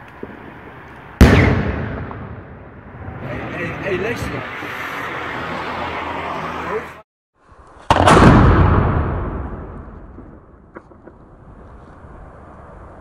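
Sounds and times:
firework shell bang: 1.2 - 2.8, 7.9 - 11.2.

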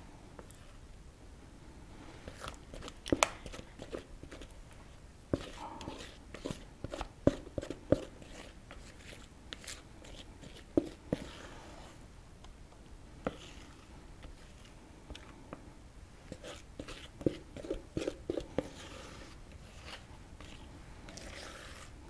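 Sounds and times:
spatula scraping bowl: 5.3 - 12.0, 13.2 - 14.8, 16.3 - 22.0.

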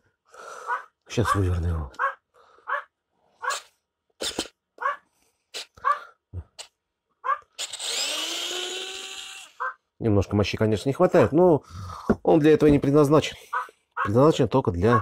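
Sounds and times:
electric screwdriver motor whining: 7.6 - 9.6.

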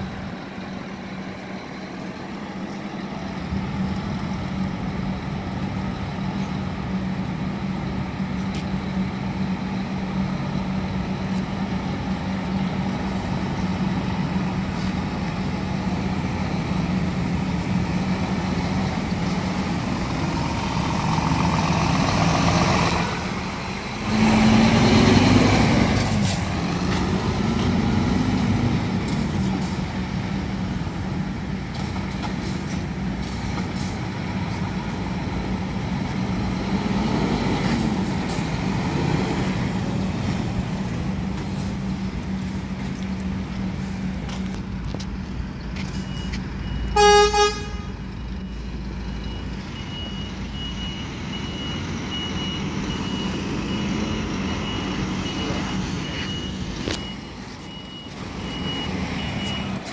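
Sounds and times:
diesel truck engine running: 0.0 - 59.9
engine revving: 19.8 - 29.4.

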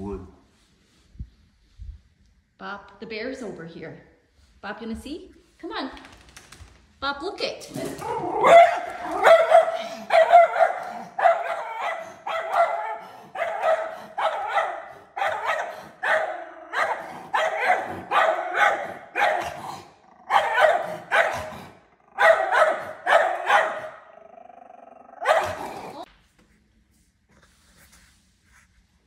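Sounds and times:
dog barking sharply: 8.3 - 19.7, 20.3 - 21.6, 22.2 - 24.0, 25.2 - 25.7.

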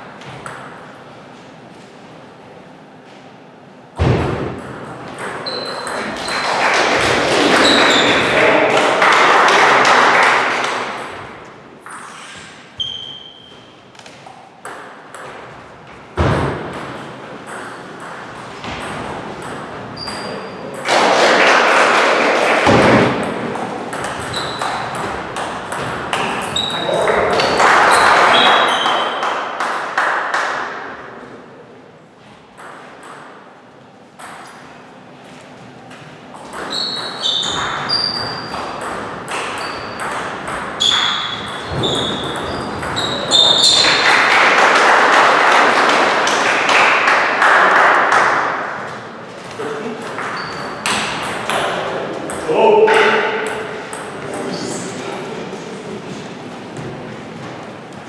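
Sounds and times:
short high squeaks: 5.4 - 6.5, 11.9 - 13.9, 20.0 - 20.7, 24.2 - 24.9, 36.6 - 38.6, 39.5 - 40.1, 40.8 - 44.0, 50.4 - 50.9.

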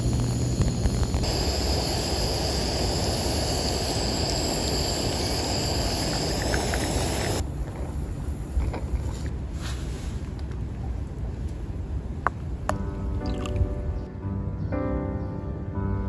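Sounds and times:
gas stove burner hissing: 0.0 - 7.4.

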